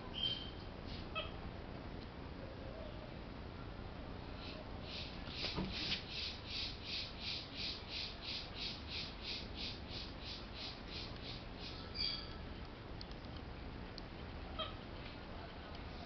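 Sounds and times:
high-pitched animal call: 14.6 - 14.8.

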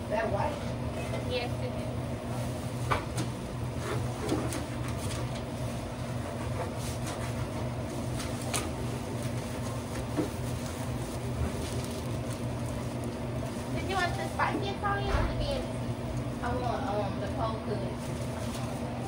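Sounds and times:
kitchen equipment humming: 0.0 - 19.0
wrapping paper rustles and taps: 6.6 - 14.7, 18.0 - 19.0.

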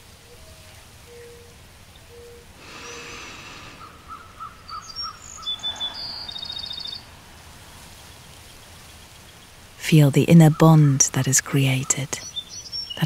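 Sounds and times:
birdsong with chirps and trill: 0.7 - 7.2, 8.0 - 13.0.

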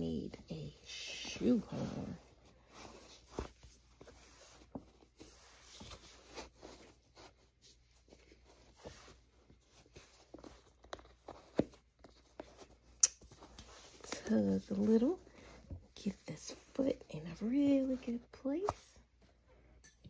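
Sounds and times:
shoe rustling and light knocks: 2.7 - 16.0.

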